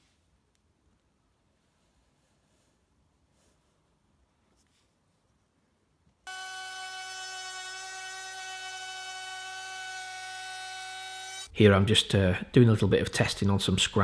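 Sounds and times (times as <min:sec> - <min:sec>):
router motor whining: 0:06.3 - 0:11.5.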